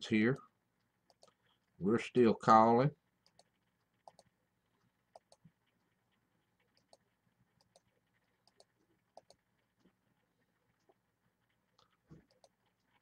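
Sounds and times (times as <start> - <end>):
faint computer mouse clicks: 1.1 - 1.4, 3.2 - 4.3, 5.1 - 5.5, 6.7 - 9.4, 11.8 - 12.9.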